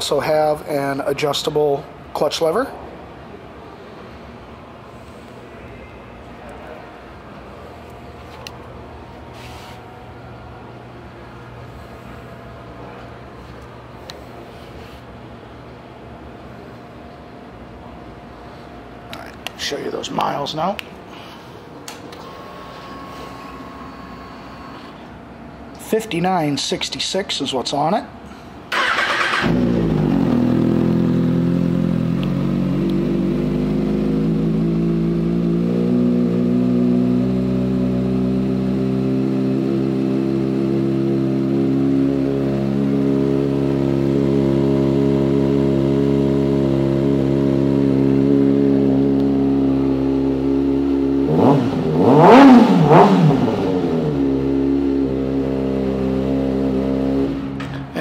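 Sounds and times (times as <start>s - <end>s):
motorcycle engine revving: 28.7s - 57.6s
motorcycle engine idling: 28.8s - 52.0s.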